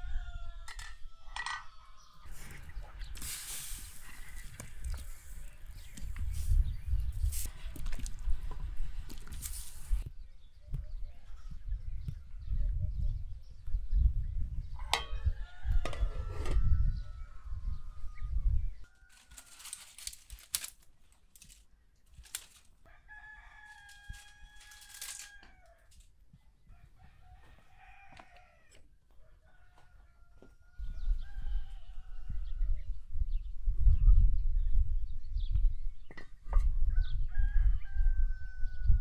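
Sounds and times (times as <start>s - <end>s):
roosters crowing: 0.0s - 2.4s, 14.8s - 19.8s, 22.8s - 25.9s, 26.7s - 32.6s, 36.9s - 39.0s.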